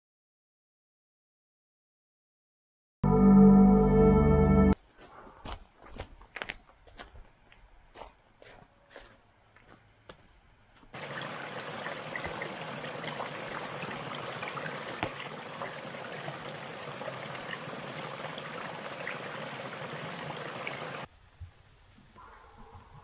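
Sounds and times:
flowing water with splashes: 11.0s - 21.1s.

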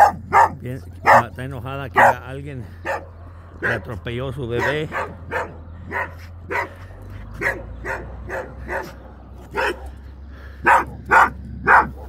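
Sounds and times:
dog barking sharply: 0.0s - 1.3s, 2.0s - 2.2s, 2.8s - 3.8s, 4.6s - 6.8s, 7.4s - 10.0s, 10.6s - 12.0s.

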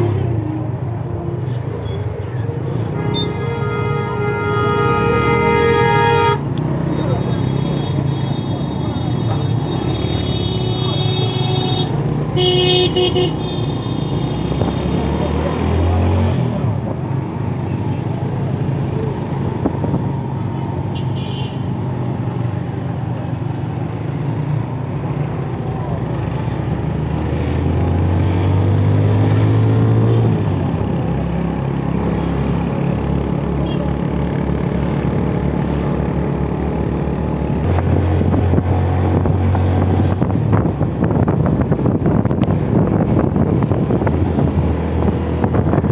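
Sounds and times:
wind buffeting microphone: 37.7s - 45.9s.

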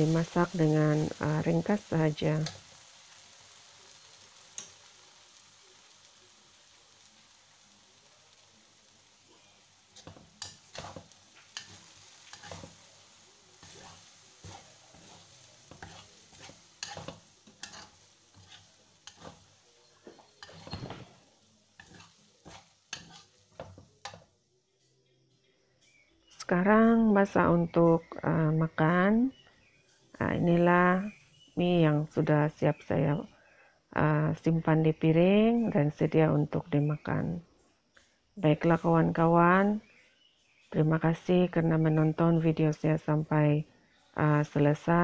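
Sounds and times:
noodles sizzling in a wok: 0.0s - 24.6s, 25.8s - 33.3s
metal spatula scraping a wok: 9.1s - 21.2s, 21.8s - 24.3s.

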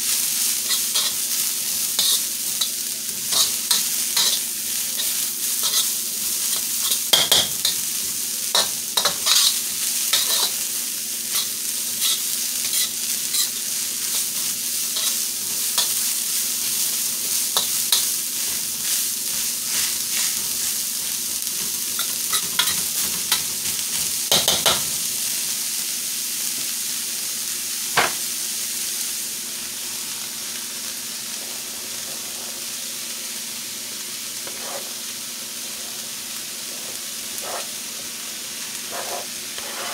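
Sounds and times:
cabbage sizzling in a wok: 0.0s - 39.9s
spatula scraping wok: 0.4s - 24.9s, 31.3s - 32.8s, 34.4s - 38.0s, 38.8s - 39.9s.

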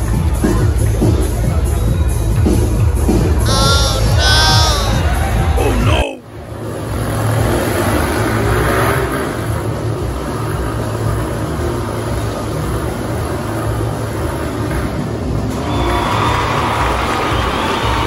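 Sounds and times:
motorcycle engines revving: 3.3s - 15.7s.

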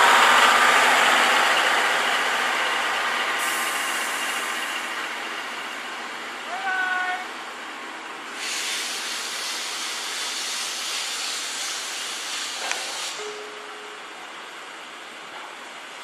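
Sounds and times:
steam locomotive hissing steam: 0.0s - 5.8s, 8.2s - 13.4s.

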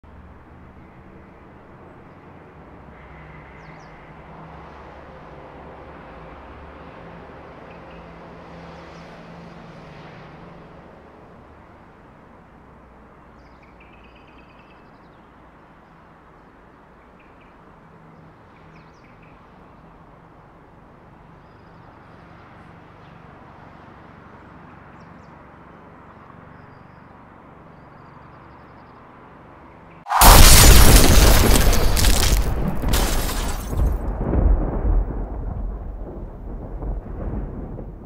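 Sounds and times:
faint outdoor ambience: 0.0s - 37.6s
loud explosion with deep rumble: 30.1s - 38.0s.

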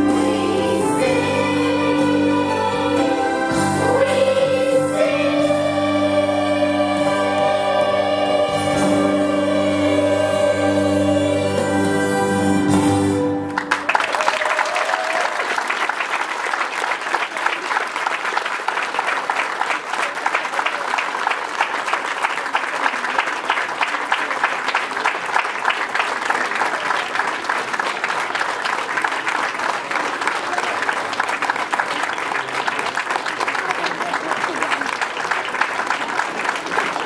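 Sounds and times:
children's choir singing: 0.0s - 13.4s
audience applauding: 13.4s - 37.0s.

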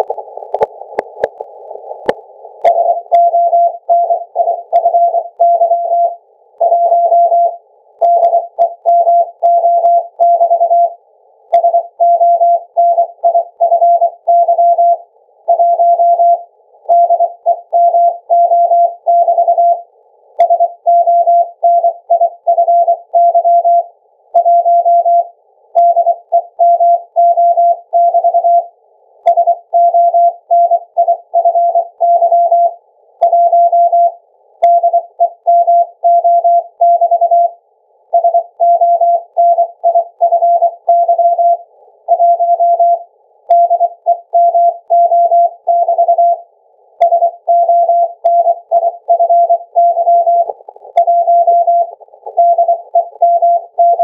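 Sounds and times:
morse code tone: 47.0s - 54.0s.

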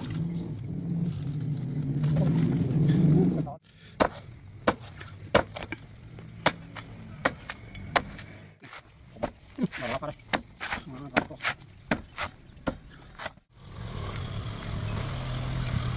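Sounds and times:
blade chopping coconut husk: 4.0s - 5.8s, 6.4s - 14.1s
low engine hum: 13.5s - 15.9s.

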